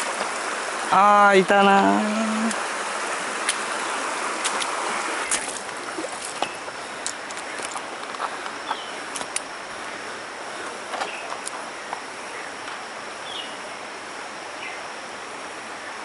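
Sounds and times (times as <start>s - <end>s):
stream water running over stones: 0.0s - 14.3s
footsteps on rocks and gravel: 4.4s - 9.4s.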